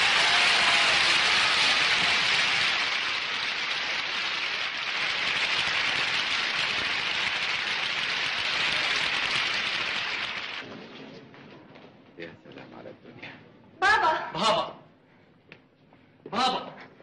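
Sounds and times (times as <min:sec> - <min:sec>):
audience applauding: 0:00.0 - 0:10.6.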